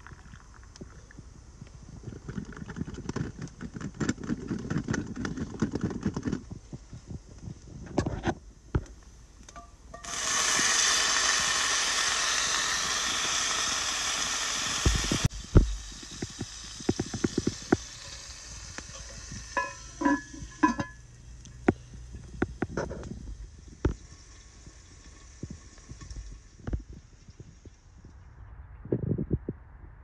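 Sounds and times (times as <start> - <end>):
water pouring into pot: 0.0 - 0.9, 15.7 - 21.0.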